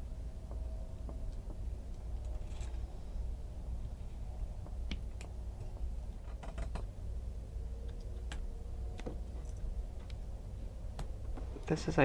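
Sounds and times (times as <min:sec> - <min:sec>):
steady low hum: 0:00.0 - 0:12.0
fingers clicking wires: 0:04.6 - 0:06.9.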